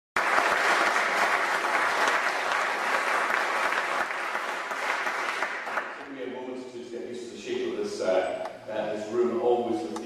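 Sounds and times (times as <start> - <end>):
audience applauding: 0.2 - 6.0.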